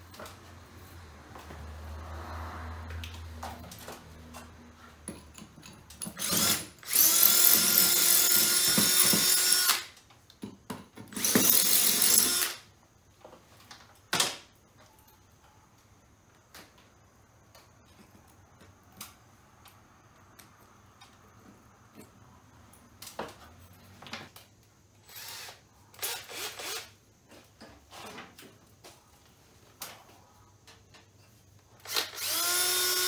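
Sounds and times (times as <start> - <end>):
power drill running: 6.2 - 9.9, 11.1 - 12.6, 25.1 - 26.9, 31.8 - 33.0.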